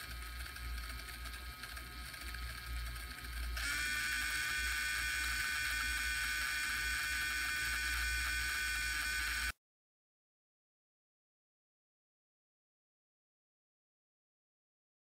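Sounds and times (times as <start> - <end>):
gearmotor high-pitched whine: 0.0 - 9.6.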